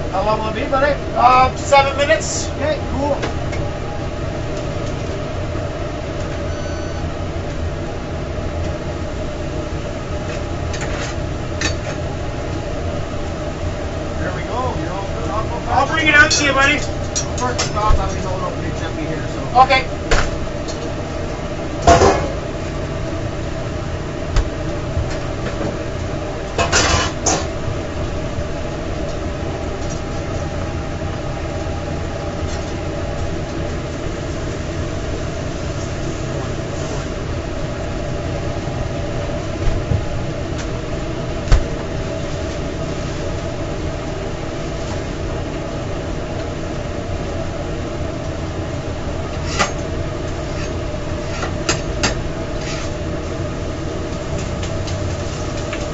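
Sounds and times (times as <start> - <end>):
kitchen equipment humming: 0.0 - 55.9.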